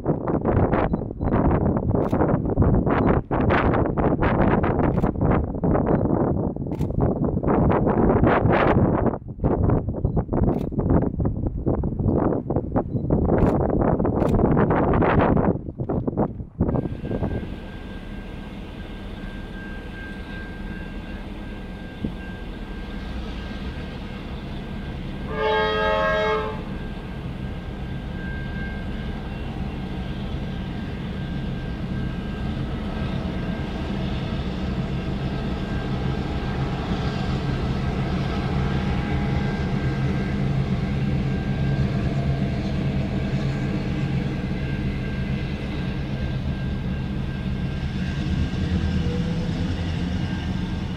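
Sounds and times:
diesel locomotive engine running: 0:00.0 - 0:50.9
multi-tone train horn: 0:16.8 - 0:50.9.

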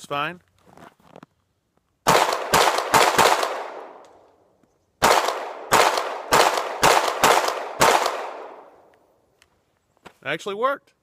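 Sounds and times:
pistol shots with echo: 0:02.0 - 0:04.0, 0:05.0 - 0:08.8.

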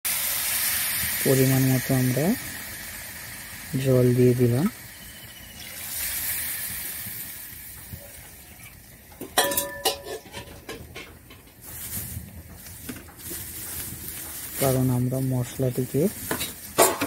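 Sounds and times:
water sizzling in hot wok: 0:00.0 - 0:17.0
metal spatula clanking on wok: 0:09.2 - 0:11.6, 0:16.3 - 0:17.0.

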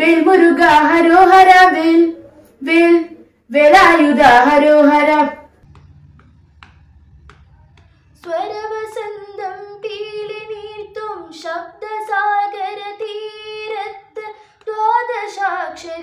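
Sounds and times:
faint low hum: 0:04.4 - 0:12.0.

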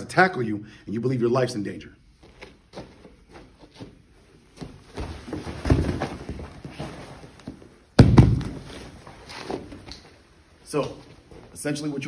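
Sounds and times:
bodies thudding and scuffling on mats: 0:02.2 - 0:10.2.

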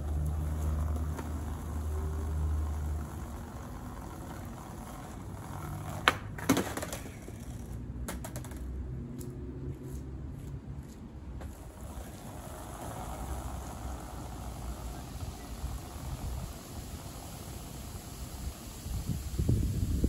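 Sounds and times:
skateboard clacks: 0:00.0 - 0:08.8, 0:11.4 - 0:17.7
skateboard rolling on pavement: 0:00.0 - 0:20.0.

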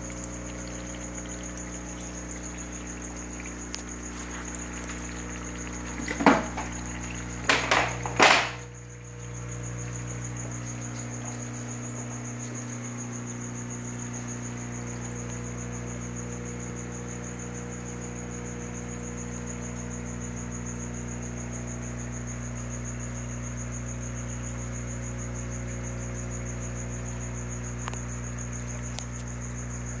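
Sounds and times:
steady low hum: 0:00.0 - 0:22.2.

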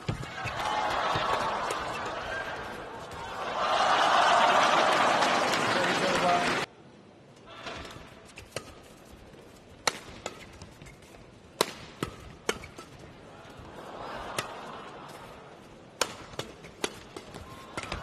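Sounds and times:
low arena hum: 0:00.0 - 0:18.0
rackets hitting shuttlecock: 0:09.8 - 0:13.0, 0:15.9 - 0:18.0.

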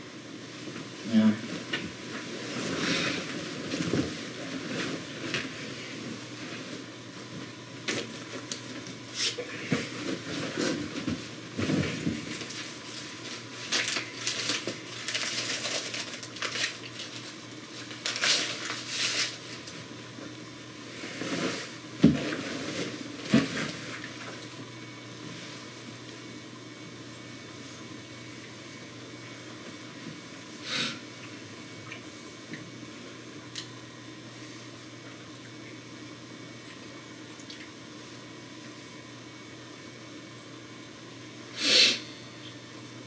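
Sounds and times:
paper wrapper crinkling: 0:12.4 - 0:19.7.

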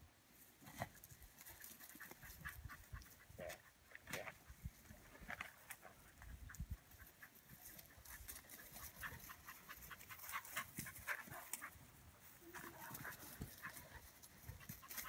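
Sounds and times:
dog panting: 0:01.5 - 0:03.8, 0:05.8 - 0:15.0.

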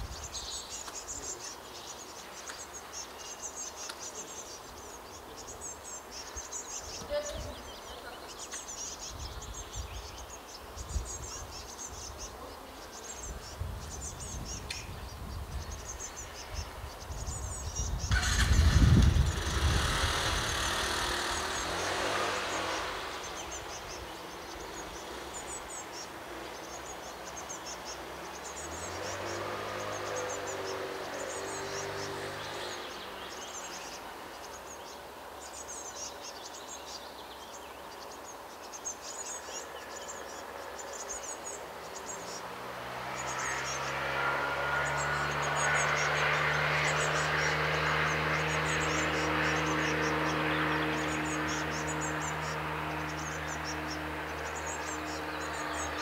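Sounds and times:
rushing noise with low rumble: 0:16.8 - 0:23.8.

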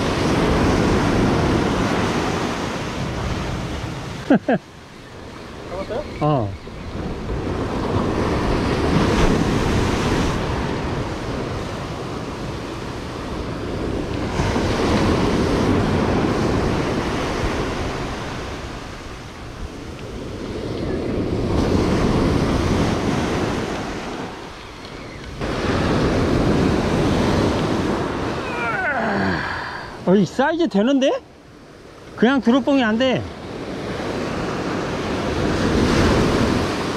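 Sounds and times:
ocean surf breaking on shore: 0:00.0 - 0:36.9.

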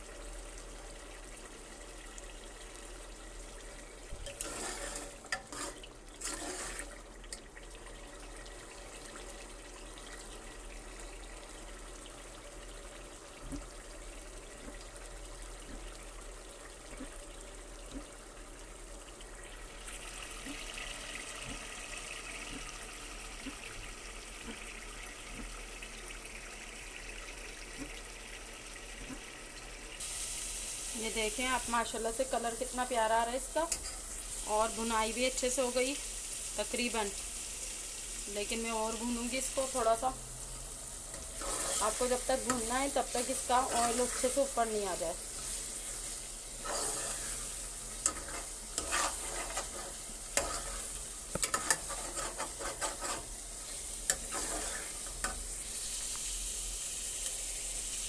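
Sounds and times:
curry sizzling and bubbling in pot: 0:00.0 - 0:58.0
metal ladle scraping pot: 0:04.2 - 0:06.9, 0:41.1 - 0:42.6, 0:46.6 - 0:47.4, 0:48.0 - 0:53.3, 0:54.1 - 0:55.4.

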